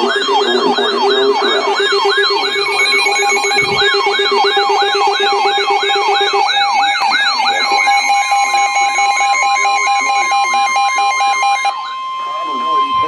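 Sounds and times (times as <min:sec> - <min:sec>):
steady beeping tones: 0:00.0 - 0:13.0
steady warning alarm tone: 0:00.0 - 0:13.0
weather radio warbling alarm: 0:00.0 - 0:13.0.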